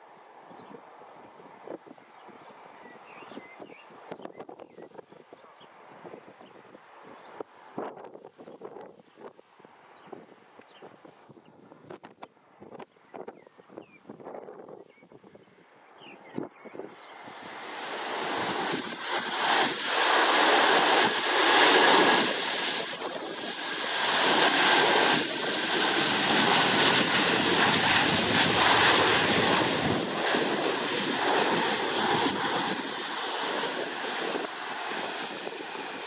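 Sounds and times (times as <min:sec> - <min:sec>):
wind gusting on microphone: 0:00.5 - 0:36.0
jet engine roaring on runway: 0:16.3 - 0:36.0.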